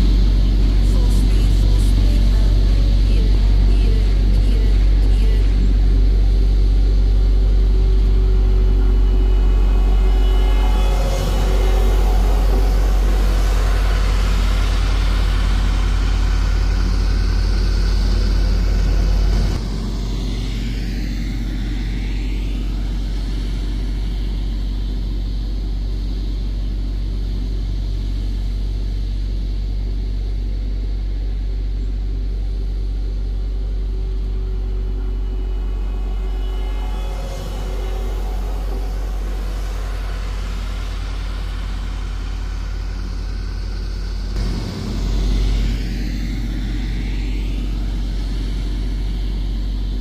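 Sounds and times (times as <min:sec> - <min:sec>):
deep engine rumble of machinery: 0:00.0 - 0:50.0.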